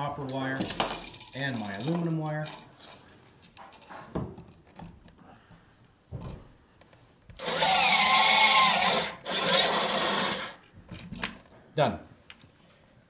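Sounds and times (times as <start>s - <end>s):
powered crimping tool motor: 7.4s - 10.6s.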